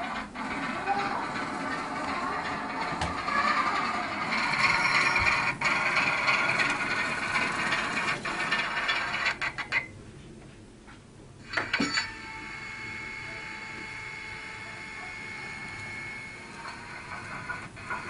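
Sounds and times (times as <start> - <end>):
model train motor whirring: 11.5 - 18.0.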